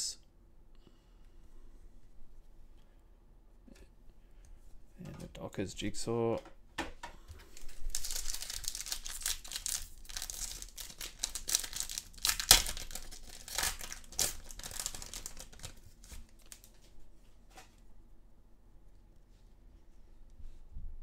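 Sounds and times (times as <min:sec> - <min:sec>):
wrapper crinkling: 0:07.5 - 0:16.9
foil pack tearing: 0:07.6 - 0:16.8.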